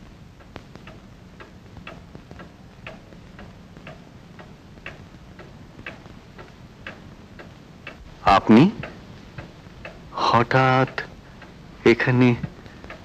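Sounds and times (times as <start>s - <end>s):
clock ticking: 0.3s - 13.0s.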